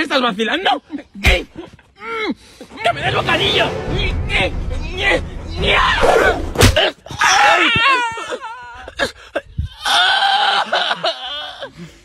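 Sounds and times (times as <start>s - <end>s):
young man wailing: 6.8s - 11.7s.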